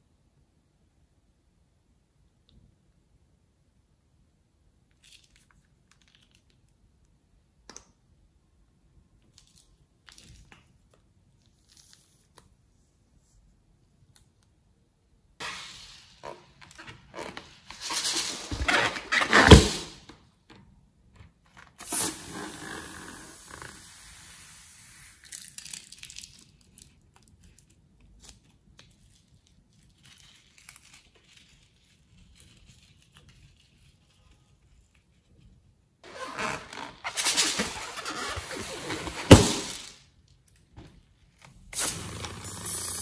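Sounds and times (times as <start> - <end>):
sudden hiss: 15.4 - 16.2, 21.8 - 25.3, 41.8 - 43.0
plastic piping bag crinkling: 25.2 - 34.1.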